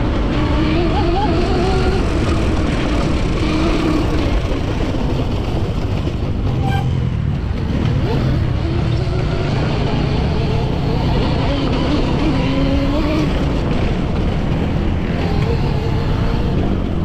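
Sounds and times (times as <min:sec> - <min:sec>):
electric motor whining: 0:00.0 - 0:04.8, 0:08.0 - 0:14.1, 0:14.8 - 0:17.0
steady rush of noise: 0:00.0 - 0:17.0.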